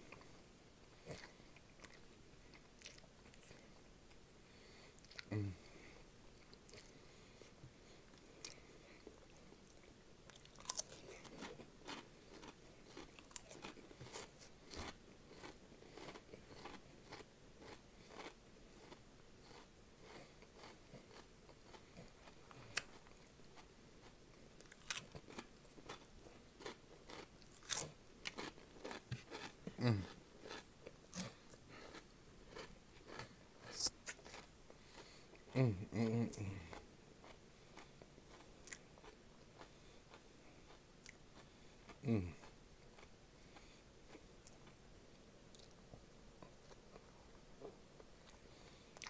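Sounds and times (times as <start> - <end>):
crunching and chewing snacks: 1.0 - 4.2, 8.1 - 44.8
person humming mm: 5.2 - 5.8, 29.7 - 30.1, 35.5 - 36.7, 42.0 - 42.5.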